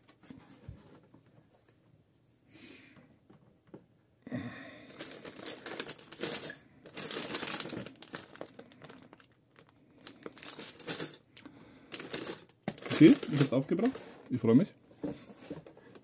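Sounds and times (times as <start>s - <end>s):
plastic bag crinkling: 4.9s - 14.4s.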